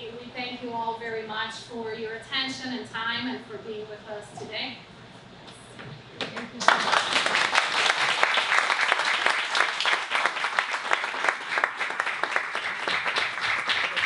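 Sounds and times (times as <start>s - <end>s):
small audience applauding: 6.4s - 14.0s.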